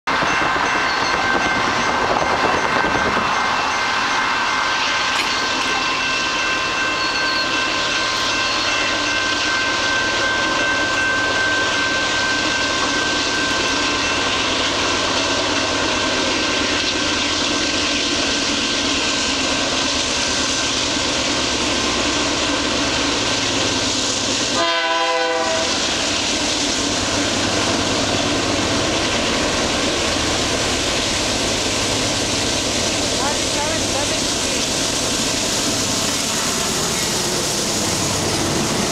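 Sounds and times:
freight train approaching: 0.0 - 38.9
train horn blast: 24.5 - 25.9.

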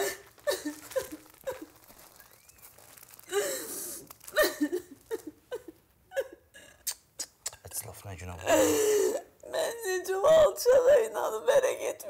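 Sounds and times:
woman sobbing: 0.0 - 1.9, 3.3 - 6.8, 8.4 - 12.0.

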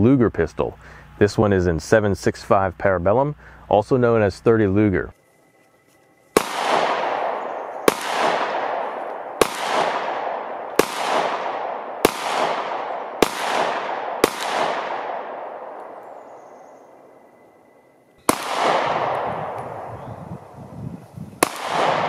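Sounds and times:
pistol shots with echo: 6.4 - 17.2, 18.2 - 20.0, 21.4 - 22.0.

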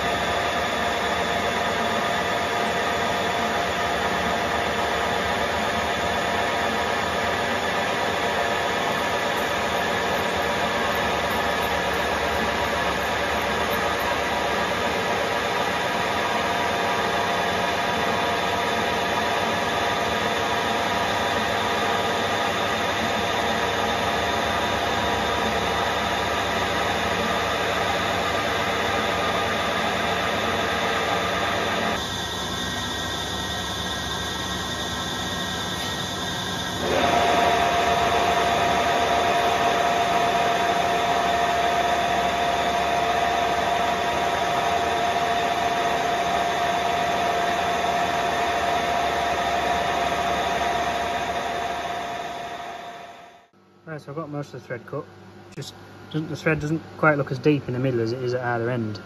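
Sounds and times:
metal lathe whirring: 0.0 - 53.5.

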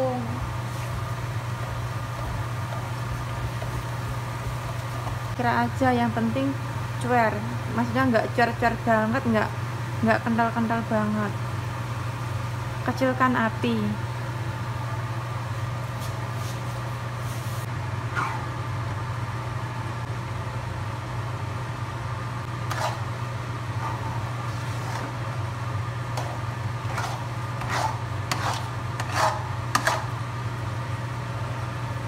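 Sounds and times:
metal spatula scraping a wok: 22.7 - 23.1, 26.2 - 30.2.

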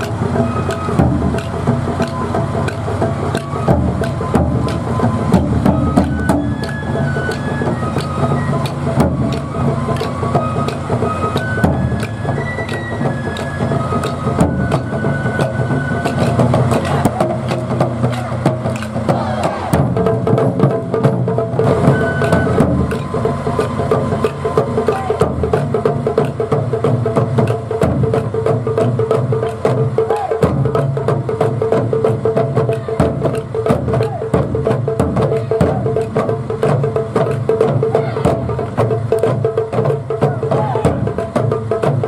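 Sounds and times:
taiko drum knocks: 14.1 - 42.0.

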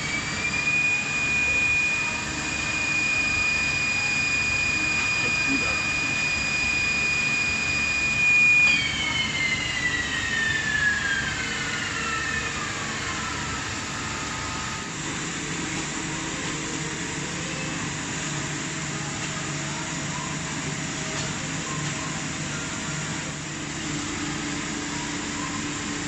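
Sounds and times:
low machine hum: 0.0 - 26.0
milling spindle whining: 0.0 - 26.0.

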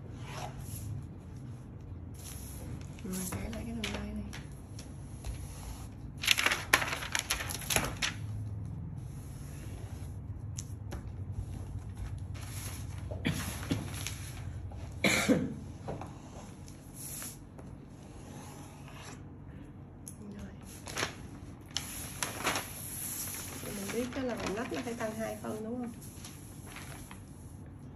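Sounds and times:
paper rustling and sliding: 2.2 - 10.2, 11.3 - 14.6, 20.7 - 27.6.

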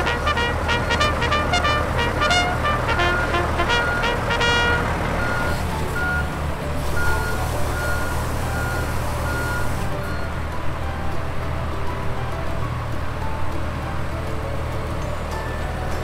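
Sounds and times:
heavy vehicle engine rumbling: 0.0 - 16.0
music: 0.0 - 16.0
high beeping: 0.7 - 6.4.

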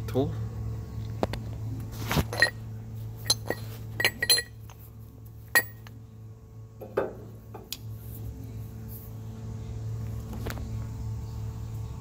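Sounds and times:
steady low hum: 0.0 - 12.0
metal parts clinking: 2.3 - 2.6, 3.2 - 4.7, 5.5 - 5.9.

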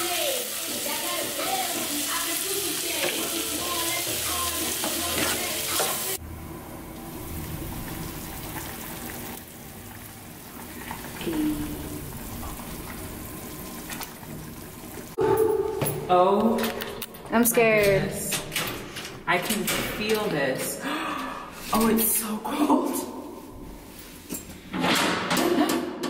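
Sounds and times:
vegetables frying hiss: 0.0 - 6.2.

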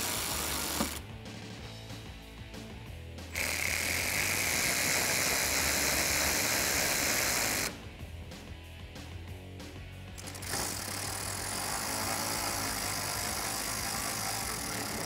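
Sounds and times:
electric ratchet whining: 0.0 - 1.0, 3.3 - 7.8, 10.2 - 15.0.

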